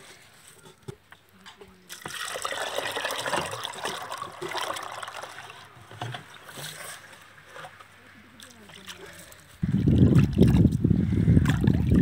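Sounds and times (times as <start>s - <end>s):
water pouring into a pot: 1.9s - 6.4s
water sloshing: 1.9s - 10.8s.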